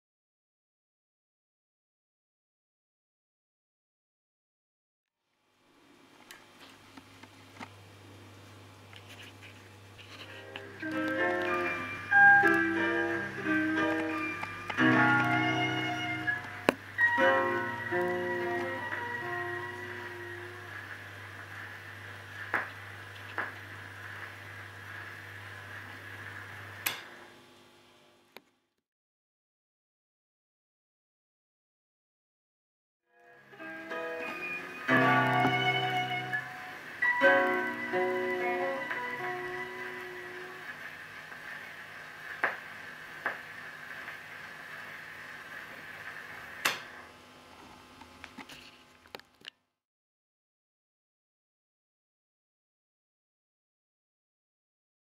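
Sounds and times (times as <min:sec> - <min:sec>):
record surface hiss: 0:05.3 - 0:28.8, 0:33.2 - 0:49.7
low steady hum: 0:05.4 - 0:28.4.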